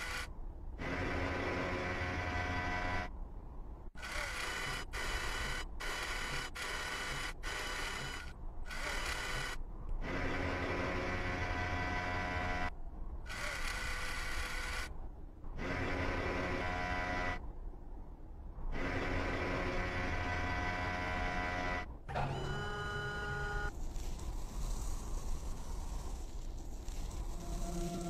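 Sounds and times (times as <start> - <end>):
robotic arm motor whir: 4.0 - 12.7, 18.7 - 28.0.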